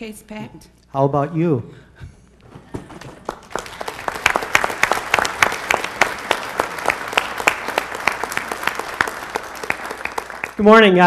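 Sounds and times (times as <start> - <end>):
congregation applauding: 2.8 - 11.0.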